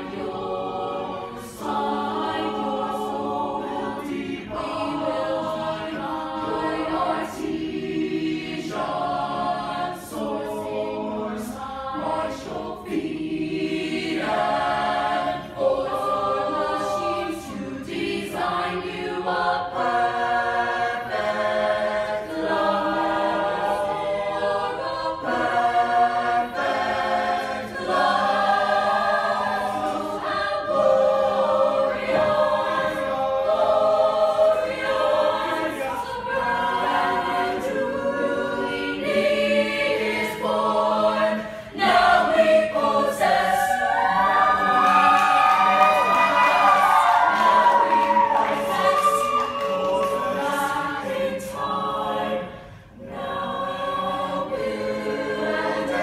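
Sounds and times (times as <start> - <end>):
choir singing in harmony: 0.0 - 56.0.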